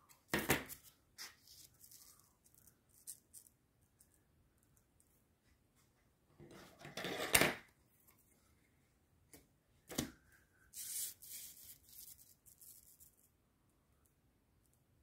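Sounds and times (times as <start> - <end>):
plastic letters rubbing on paper: 10.8 - 13.1.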